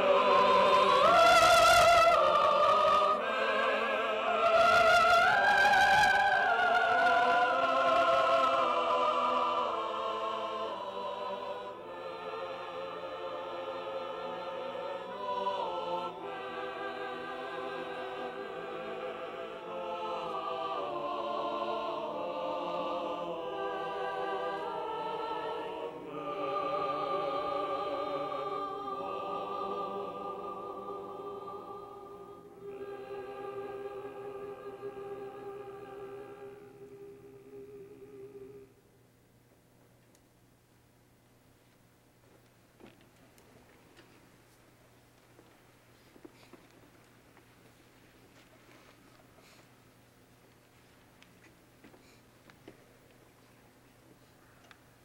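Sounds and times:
choir singing held chords: 0.0s - 39.0s.

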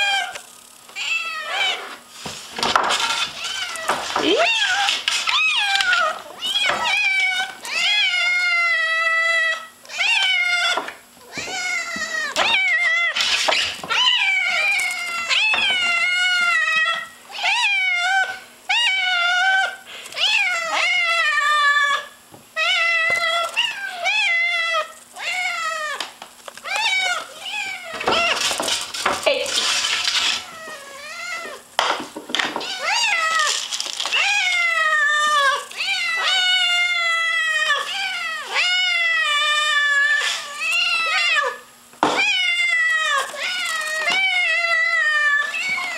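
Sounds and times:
kittens meowing: 2.8s - 28.5s, 32.6s - 45.9s
rustling: 26.3s - 31.6s, 32.7s - 36.6s.

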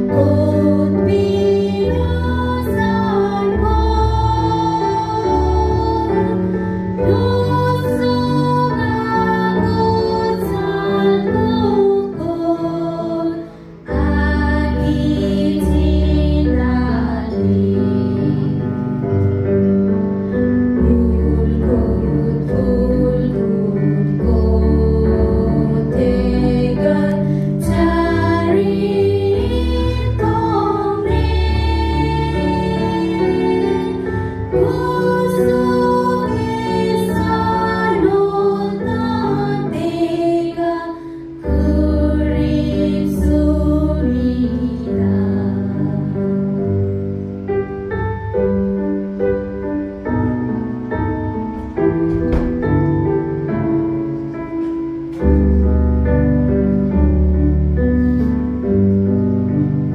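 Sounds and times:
women singing into microphones: 0.0s - 18.6s, 20.8s - 46.4s.

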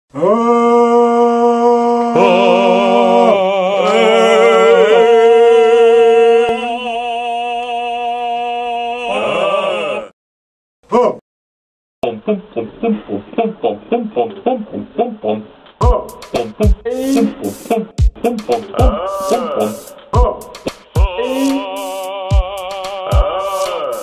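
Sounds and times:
voices singing a chord: 0.2s - 10.1s, 15.8s - 24.0s.

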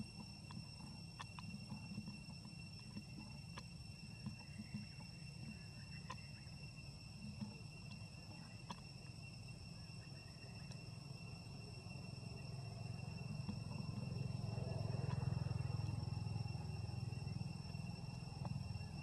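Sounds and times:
faint clicks: 0.0s - 6.6s, 7.2s - 9.2s, 10.6s - 10.8s
insects droning: 0.0s - 19.0s.

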